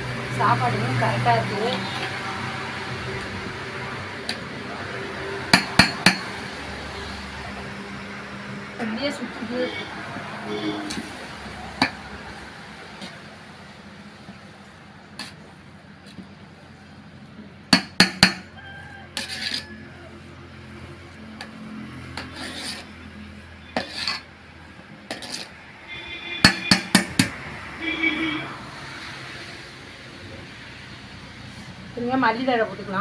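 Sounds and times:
metal ladle scraping cooking pot: 0:10.5 - 0:12.1, 0:15.1 - 0:15.5, 0:19.1 - 0:19.9, 0:21.4 - 0:27.2.

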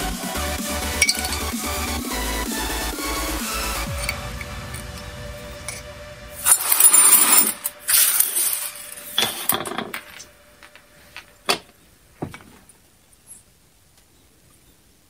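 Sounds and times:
small metal parts clattering: 0:06.4 - 0:11.7.

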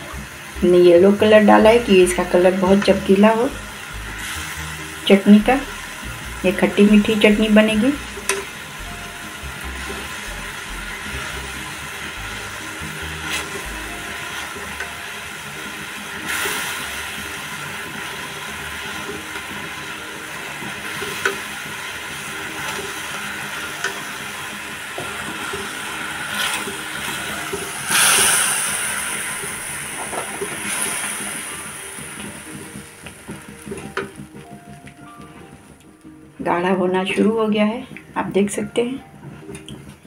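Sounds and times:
sauce bubbling and sizzling: 0:00.0 - 0:36.4
spatula scraping a pan: 0:13.2 - 0:13.6.

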